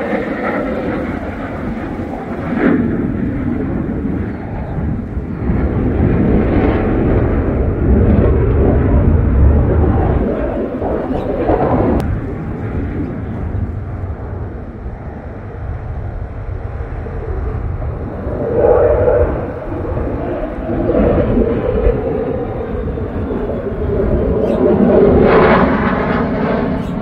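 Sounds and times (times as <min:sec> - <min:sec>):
fighter jet engines rumbling: 0:00.0 - 0:27.0.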